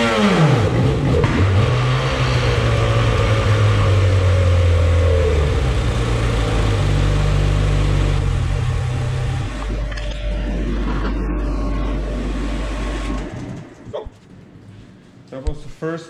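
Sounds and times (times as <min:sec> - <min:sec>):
low steady hum: 0:07.4 - 0:15.8.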